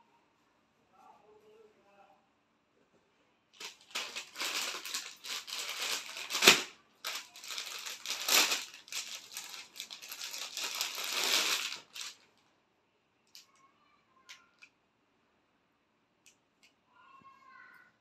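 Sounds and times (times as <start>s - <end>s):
plastic bag crinkling: 3.6s - 12.3s.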